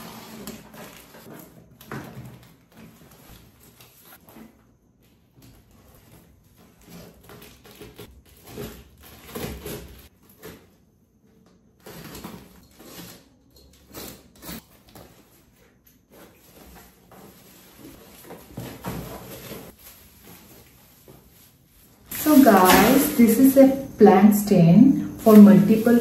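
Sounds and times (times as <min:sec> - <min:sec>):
plastic wrapping rustling: 0:00.0 - 0:04.5, 0:14.0 - 0:26.0.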